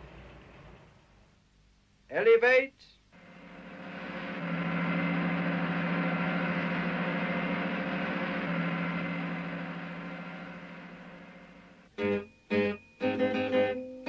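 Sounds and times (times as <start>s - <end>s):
ladder motor hum: 3.2s - 11.9s.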